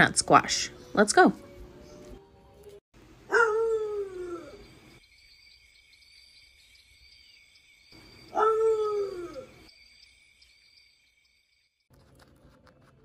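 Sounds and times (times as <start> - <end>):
dog howling: 3.3 - 4.7, 8.3 - 9.7.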